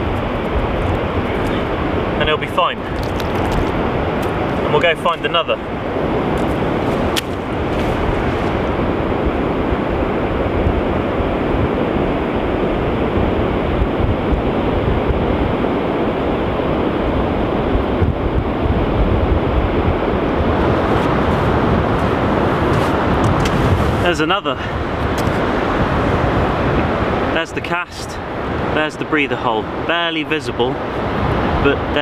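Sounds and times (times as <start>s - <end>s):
surf rushing: 0.0s - 32.0s
wind buffeting microphone: 0.0s - 32.0s.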